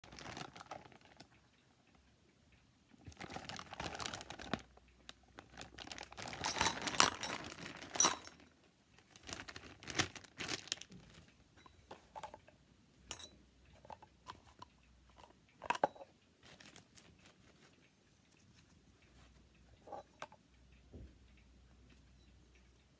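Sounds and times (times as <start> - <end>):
plastic packaging crinkling: 0.0 - 1.3, 3.1 - 11.3, 16.4 - 17.3.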